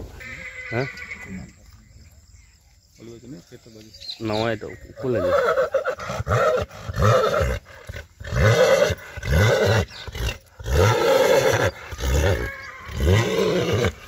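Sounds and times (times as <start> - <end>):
horse deep rumbling calls: 5.0 - 14.0.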